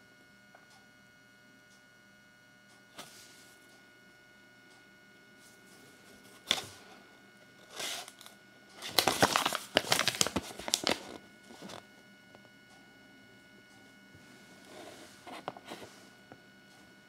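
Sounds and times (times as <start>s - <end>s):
paper leaflet crinkling: 7.7s - 11.8s.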